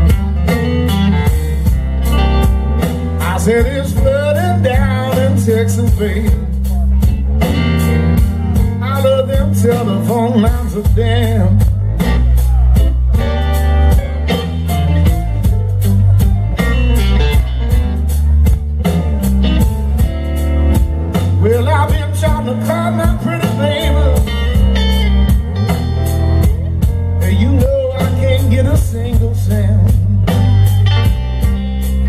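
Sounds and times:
electric guitar lead lines: 0.0s - 32.0s
live blues band playing: 0.0s - 32.0s
person singing: 3.1s - 14.9s, 21.1s - 30.8s.

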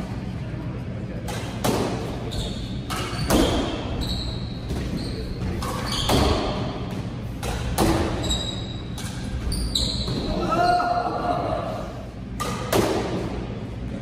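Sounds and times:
shoes squeaking on hardwood floor: 2.3s - 6.6s, 8.1s - 10.4s.

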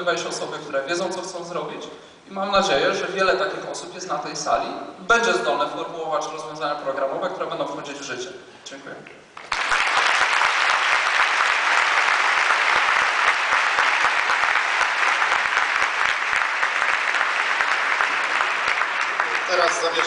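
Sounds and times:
large audience applauding: 9.4s - 20.0s.

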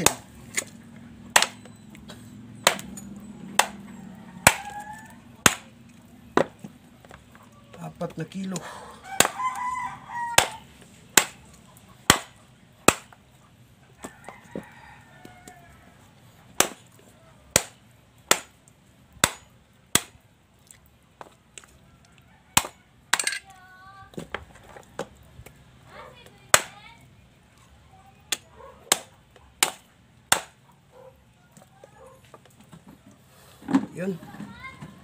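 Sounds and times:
rooster crowing: 3.4s - 5.4s, 8.6s - 10.7s, 14.0s - 16.1s.

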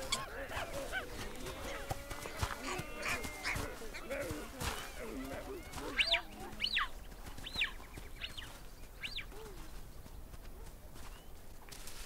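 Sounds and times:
baboons yelping: 0.0s - 6.9s.

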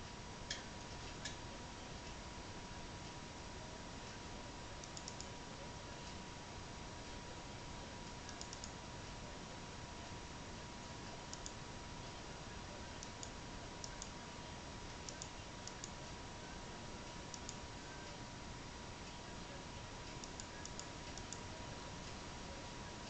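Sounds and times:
faint steady tone: 0.0s - 23.0s
small ticks: 4.8s - 5.4s.

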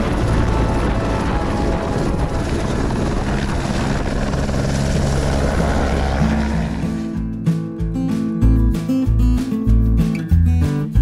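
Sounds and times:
helicopter rotor and turbine: 0.0s - 7.6s.

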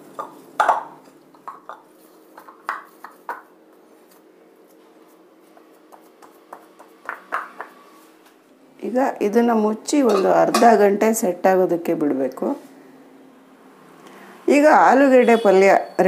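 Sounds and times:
taps and knocks against bowl: 0.2s - 3.5s, 5.9s - 7.8s
hands patting dough: 1.4s - 7.9s.

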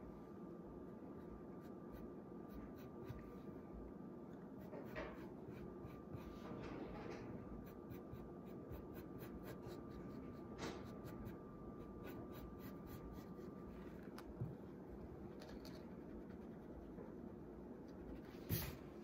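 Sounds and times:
pencil scratching on paper: 1.6s - 3.4s, 4.6s - 6.4s, 7.6s - 13.8s.

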